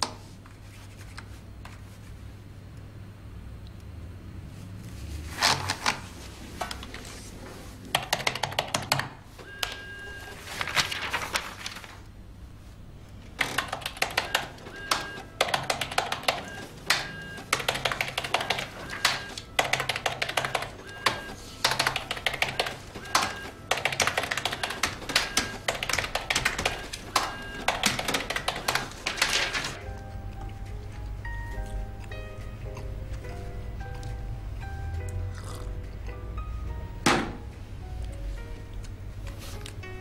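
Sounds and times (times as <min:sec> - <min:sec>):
fast typing on keyboards: 0:07.9 - 0:09.9, 0:13.4 - 0:29.8.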